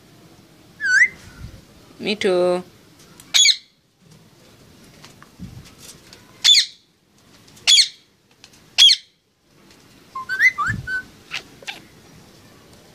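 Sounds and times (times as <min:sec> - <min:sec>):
parakeet screeching and chattering: 0:10.2 - 0:11.9.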